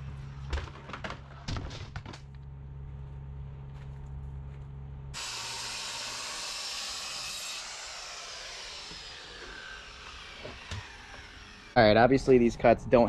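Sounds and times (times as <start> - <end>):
low hum: 0.0 - 5.5
circular saw whine spinning down: 5.2 - 13.0.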